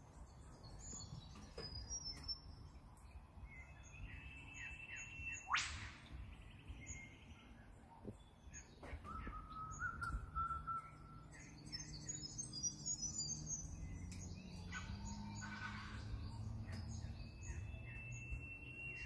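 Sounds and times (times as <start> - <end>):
birds twittering: 0.0 - 19.0
birds whistling: 3.4 - 19.0
rough bird calls: 8.5 - 19.0.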